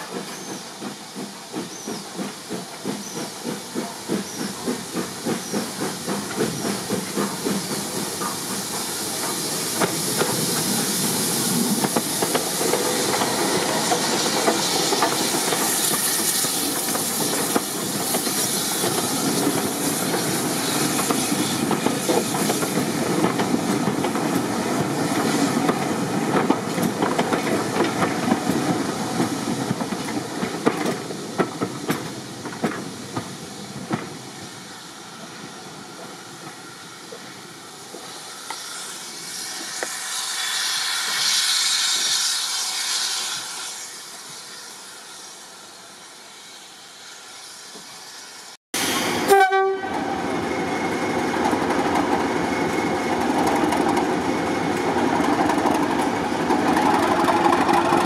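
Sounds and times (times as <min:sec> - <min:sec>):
train wheels clicking over rail joints: 0:00.0 - 0:34.3, 0:50.3 - 0:58.0
steam hissing: 0:00.0 - 0:58.0
steam locomotive exhaust beats: 0:00.0 - 0:58.0.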